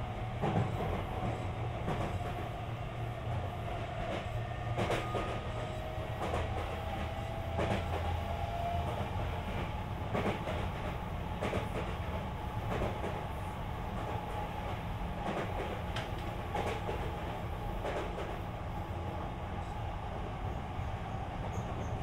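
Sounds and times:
train wheels rumbling on rail: 0:00.0 - 0:22.0
clacks over rail joints: 0:07.5 - 0:08.0, 0:10.1 - 0:12.0.

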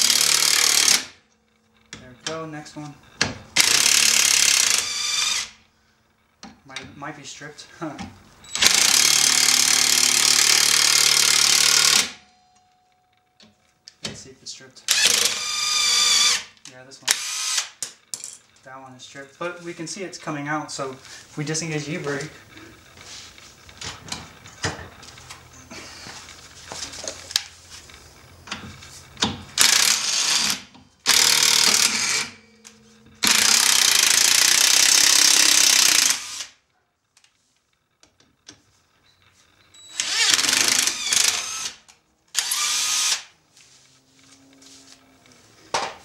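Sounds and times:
impact driver hammering: 0:08.6 - 0:12.2, 0:29.2 - 0:36.3.

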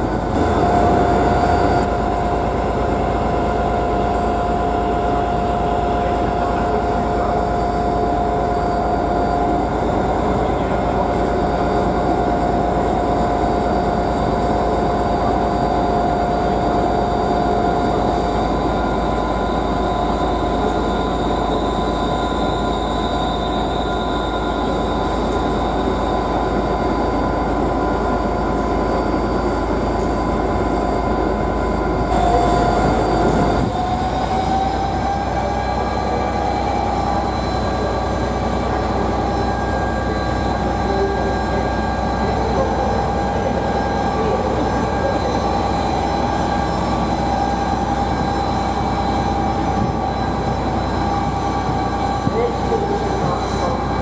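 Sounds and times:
diesel locomotives engines: 0:00.0 - 0:54.0
electric train whine: 0:00.0 - 0:54.0.

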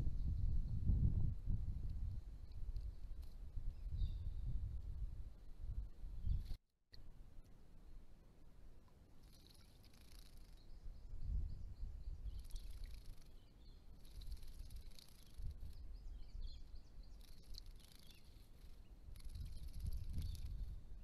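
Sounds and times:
wings fluttering: 0:06.2 - 0:06.6, 0:09.2 - 0:10.7, 0:12.3 - 0:16.1, 0:17.1 - 0:20.8.

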